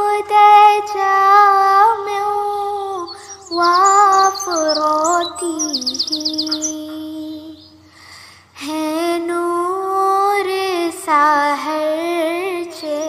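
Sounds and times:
devotional song singing: 0.0 - 13.0
bird chirps: 2.4 - 8.2, 12.6 - 13.0.

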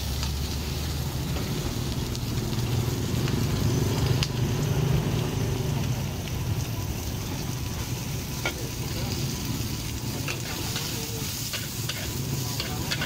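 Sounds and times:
food sizzling in a wok: 0.0 - 13.0
metal spatula clacking on wok: 10.3 - 13.0.

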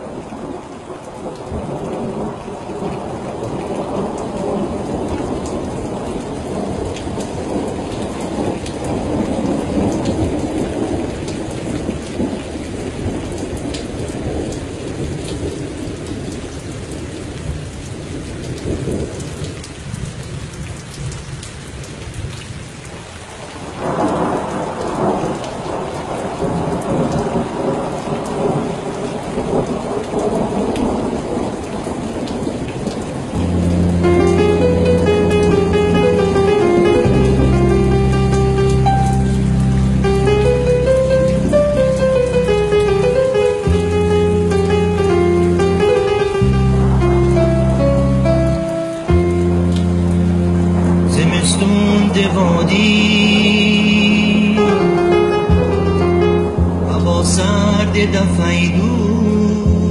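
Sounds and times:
rain on window glass: 0.0 - 59.9
thunder rolling: 23.7 - 58.4
music: 33.4 - 59.9.

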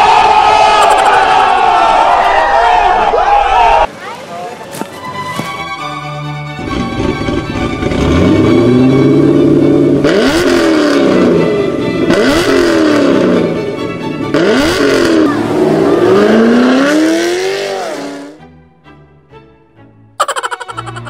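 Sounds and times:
car engine revving: 6.5 - 18.4.

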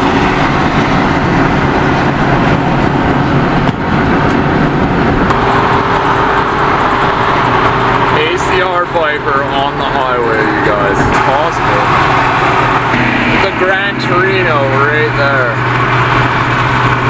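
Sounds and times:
tyre and wind noise: 0.0 - 8.2
car engine cruising: 0.0 - 17.0.

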